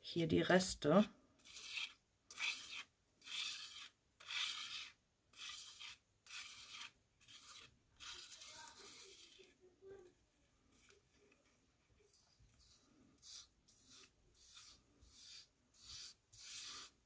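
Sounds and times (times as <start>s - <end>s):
pad scraping over paper: 1.5s - 9.5s, 12.1s - 17.0s.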